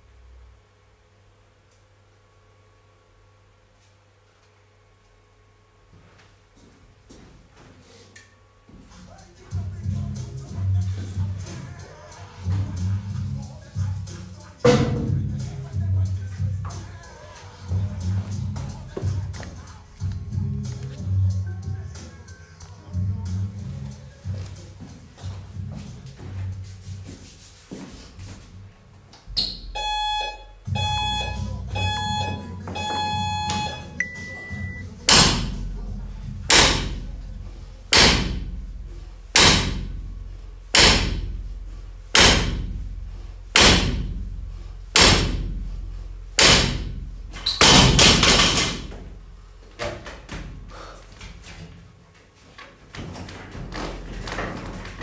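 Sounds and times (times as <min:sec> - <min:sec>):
long high start beep: 0:29.7 - 0:34.9
timer beeps: 0:29.7 - 0:34.9
barbell plates hitting wooden platform: 0:47.6 - 0:49.0.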